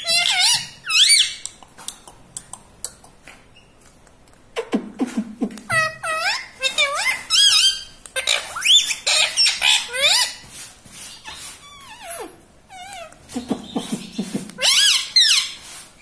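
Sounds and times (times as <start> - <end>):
parakeet squawking: 0.0 - 1.4, 5.7 - 10.4, 11.1 - 15.6.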